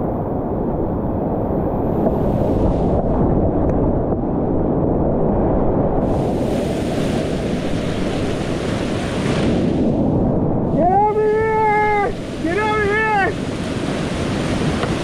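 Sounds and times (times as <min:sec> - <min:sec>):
whitewater rushing: 0:06.1 - 0:10.0, 0:10.8 - 0:15.0.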